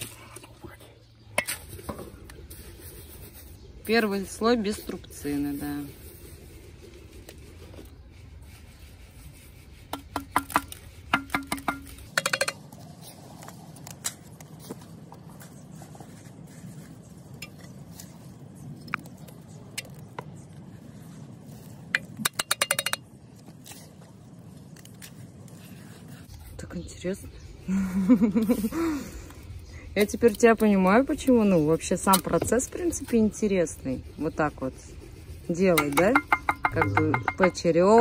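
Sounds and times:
bricks clinking and knocking: 0:35.8 - 0:38.0.

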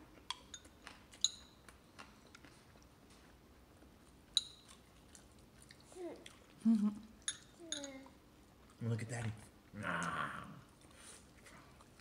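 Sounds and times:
baby chewing: 0:00.0 - 0:06.6
light clinks: 0:07.3 - 0:08.0.

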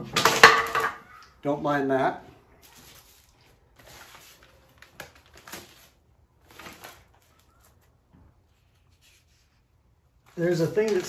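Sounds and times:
paper rustling and taps: 0:03.8 - 0:05.9, 0:10.6 - 0:11.0.

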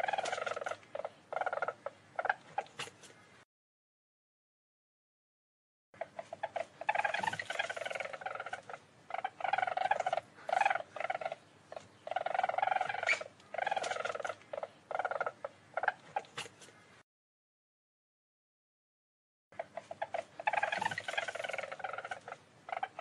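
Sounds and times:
weasel trilling: 0:00.0 - 0:03.2, 0:06.0 - 0:16.8, 0:19.6 - 0:23.0.

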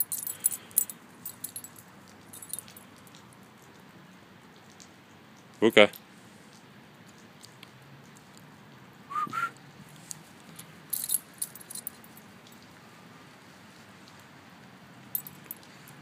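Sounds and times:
metallic jingling of dog tags: 0:00.0 - 0:03.1, 0:10.9 - 0:12.2, 0:15.2 - 0:15.7.

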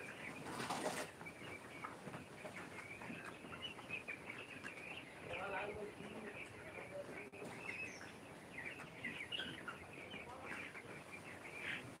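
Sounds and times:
chicks cheeping: 0:00.0 - 0:12.0.

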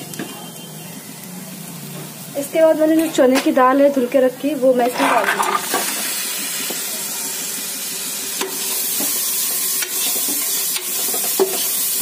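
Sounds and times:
lentils sizzling in hot oil: 0:00.0 - 0:12.0.

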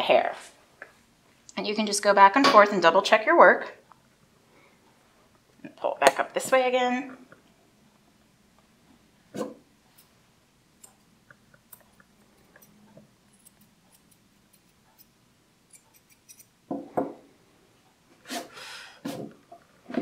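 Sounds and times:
scissors snipping hair: 0:11.6 - 0:15.1, 0:15.7 - 0:16.5.

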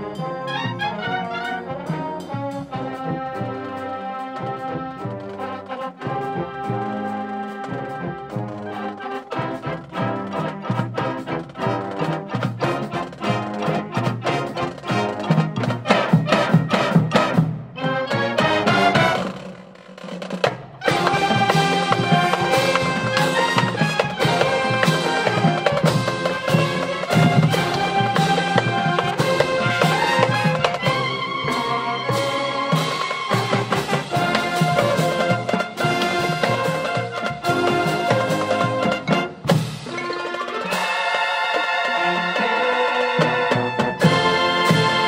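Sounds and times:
marching band playing: 0:00.0 - 0:45.0.

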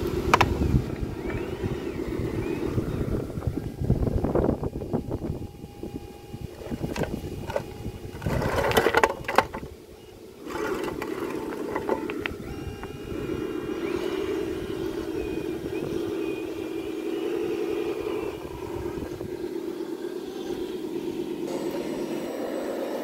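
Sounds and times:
model truck motor running: 0:00.0 - 0:23.0.

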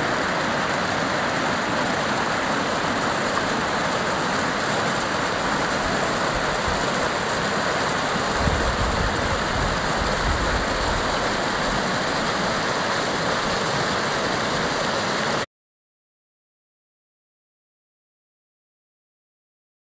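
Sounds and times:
flood water rushing over rocks: 0:00.0 - 0:15.4.

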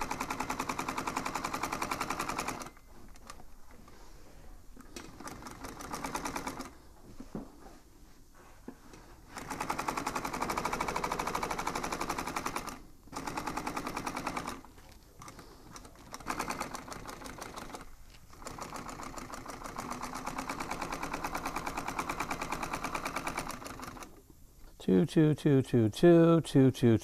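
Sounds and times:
sewing machine needle rattling: 0:00.0 - 0:03.4, 0:04.9 - 0:06.8, 0:09.4 - 0:24.2.

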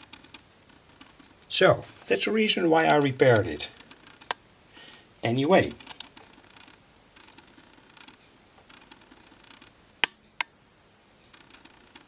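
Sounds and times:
faint patchy hiss: 0:00.0 - 0:12.0
sharp clicks: 0:02.8 - 0:10.5.

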